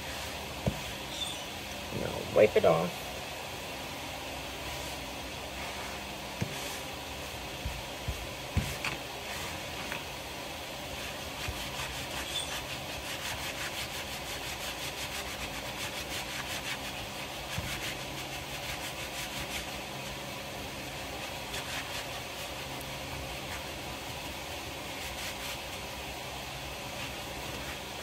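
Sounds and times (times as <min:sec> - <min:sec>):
paper towel scrubbing plastic board: 0:04.6 - 0:10.0, 0:10.9 - 0:20.2, 0:20.8 - 0:26.0.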